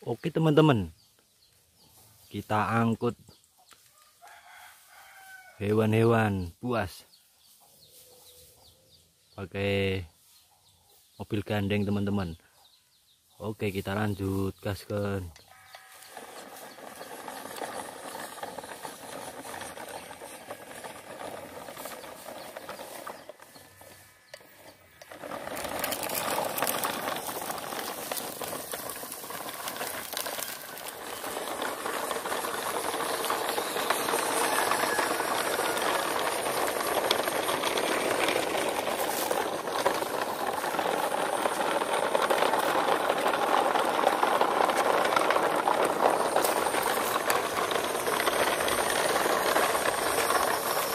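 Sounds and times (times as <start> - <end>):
plastic wheels rattling on concrete: 2.2 - 8.5, 11.0 - 50.9
small electric motor running: 15.4 - 50.9.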